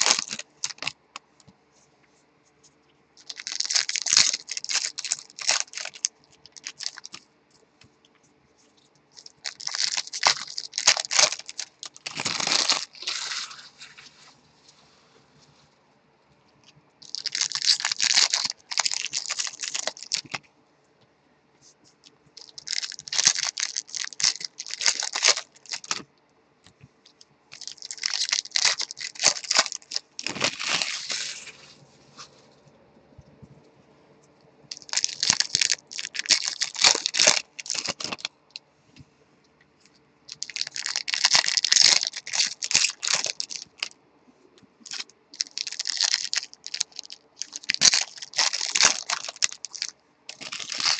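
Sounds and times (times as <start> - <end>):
card packs crinkling and rustling: 0.0 - 1.0, 3.2 - 7.2, 9.2 - 14.2, 17.0 - 20.4, 22.4 - 26.1, 27.5 - 31.8, 34.7 - 38.3, 40.3 - 44.0, 44.8 - 50.9.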